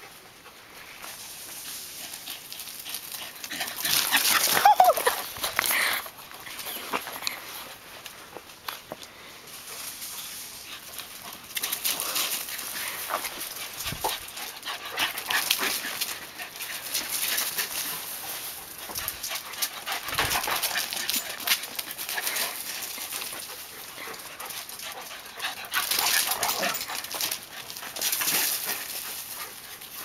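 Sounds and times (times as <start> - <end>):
dogs playing: 0.0 - 30.0
paws running on gravel: 0.1 - 30.0.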